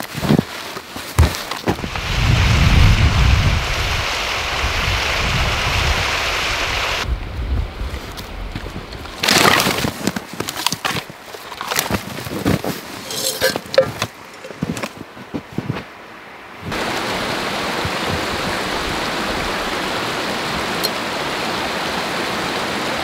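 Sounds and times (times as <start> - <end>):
branches rustling through snow: 0.0 - 5.0, 7.6 - 16.0
wind buffeting microphone: 1.8 - 9.2.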